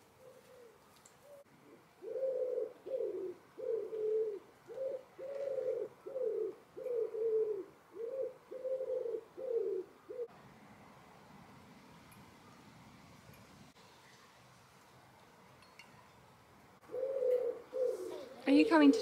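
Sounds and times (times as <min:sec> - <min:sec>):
pigeon cooing: 0:00.0 - 0:10.3, 0:16.8 - 0:19.0.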